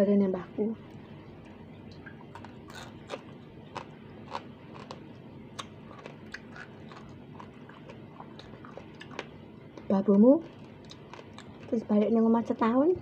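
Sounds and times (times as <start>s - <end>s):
crisp chewing crunches: 2.3s - 11.8s.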